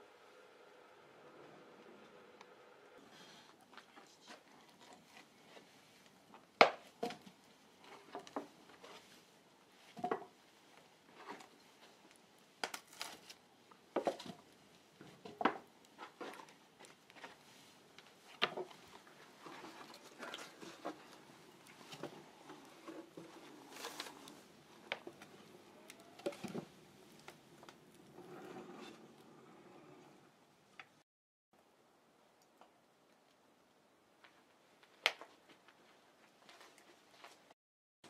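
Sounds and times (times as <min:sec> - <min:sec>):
wood fire crackling and popping: 0:03.7 - 0:09.2, 0:09.8 - 0:28.9, 0:34.2 - 0:37.3.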